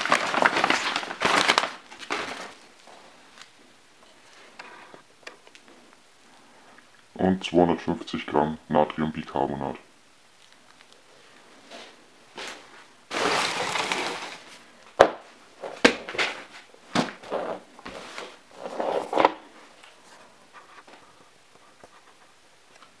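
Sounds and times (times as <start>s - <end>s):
plastic packaging rustling: 0.0s - 6.0s, 10.3s - 22.0s.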